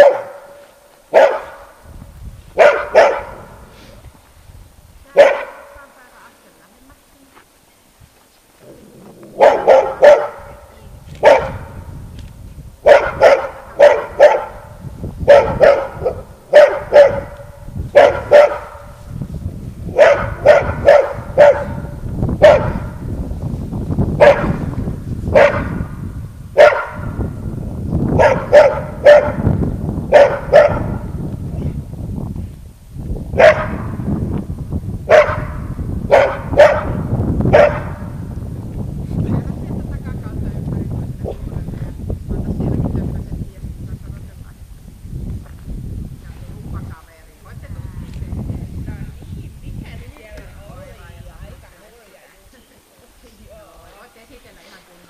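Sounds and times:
dog barking: 0.0 - 1.7, 2.6 - 3.5, 5.2 - 5.8, 9.4 - 10.6, 11.2 - 11.7, 12.8 - 14.7, 15.3 - 18.9, 19.9 - 23.0, 24.2 - 24.6, 25.3 - 25.8, 26.6 - 27.2, 28.2 - 29.5, 30.1 - 31.1, 33.4 - 33.8, 35.1 - 38.1.

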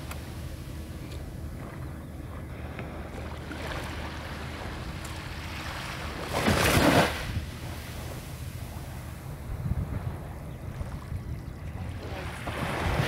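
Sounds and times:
low steady hum: 0.0 - 13.0
water lapping: 0.0 - 13.0
wave splashing on shoreline: 3.4 - 9.2.

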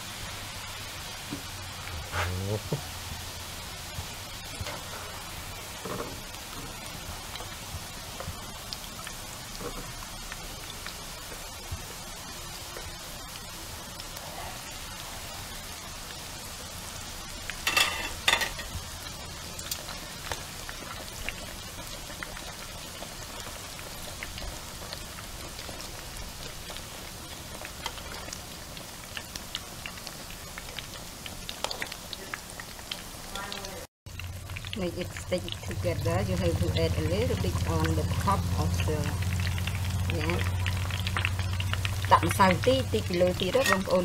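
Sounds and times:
fish frying in hot oil: 0.0 - 44.0
oil crackling and popping: 0.0 - 44.0.

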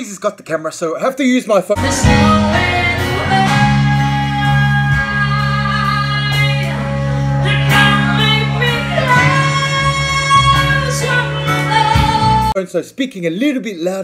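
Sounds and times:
electric bass: 1.8 - 12.6
electric guitar: 1.8 - 12.6
woman singing: 1.8 - 12.6.

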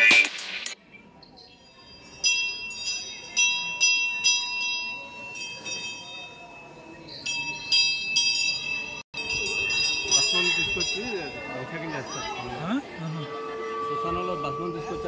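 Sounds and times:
temple bell ringing: 1.5 - 15.0.

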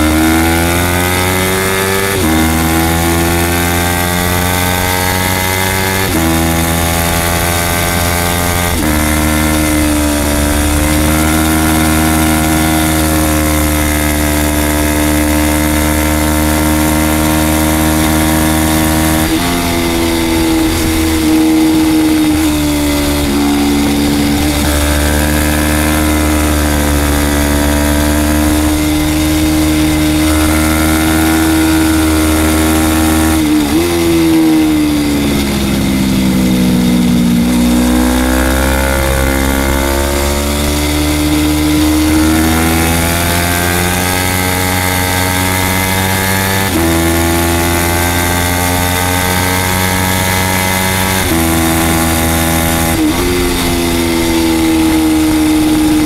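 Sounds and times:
motorcycle engine at full throttle: 0.0 - 56.0
wind rush: 7.3 - 15.1, 16.5 - 44.1, 50.3 - 56.0.

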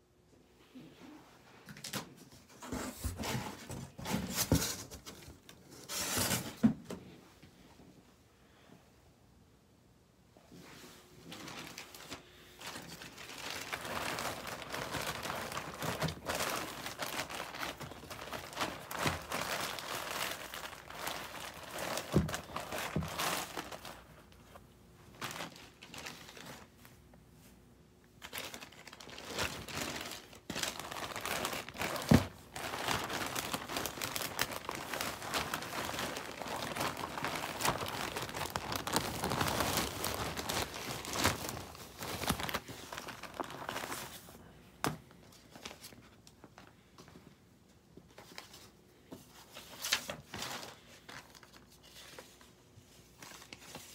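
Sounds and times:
plastic bags crinkling: 11.2 - 26.9, 28.2 - 44.4, 49.6 - 53.9.

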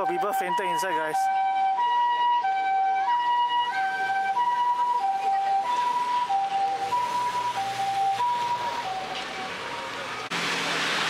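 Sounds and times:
ambulance two-tone siren: 0.0 - 10.3.

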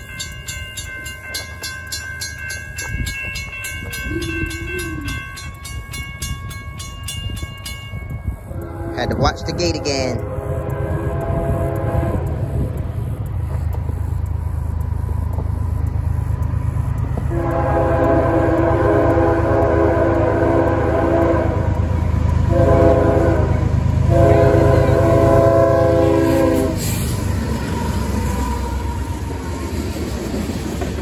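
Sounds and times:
train rumbling: 0.0 - 31.0
locomotive air horn blasts: 8.5 - 12.7, 17.2 - 21.7, 22.4 - 27.1.

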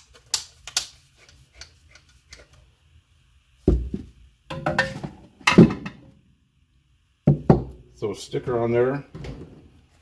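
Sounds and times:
parts clattering on bench: 3.7 - 6.1.

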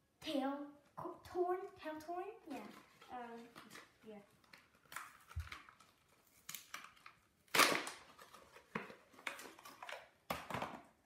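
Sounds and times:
plastic packaging tearing and crinkling: 2.5 - 10.2.

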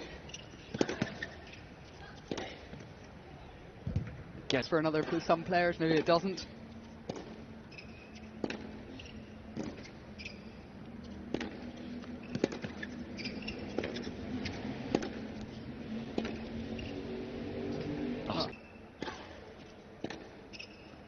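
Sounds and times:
shoe squeaks: 0.0 - 2.6, 6.7 - 15.3, 16.2 - 19.0, 19.6 - 21.0
ball bouncing on hard court: 4.9 - 6.3, 7.0 - 17.0, 20.0 - 20.9
tennis ball struck by racquets: 7.0 - 7.8, 8.4 - 9.9, 11.2 - 16.6.

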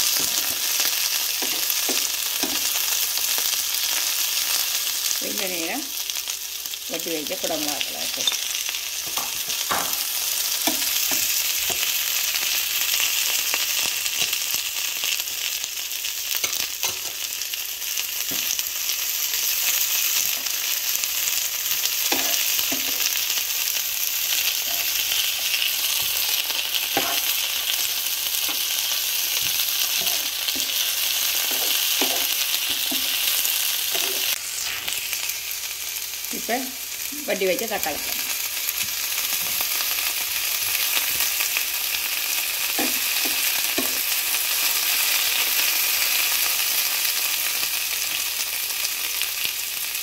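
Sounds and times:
vegetables sizzling in a frying pan: 0.0 - 50.0
spatula knocking and scraping pan: 9.0 - 11.9, 26.9 - 27.3, 29.4 - 33.2.

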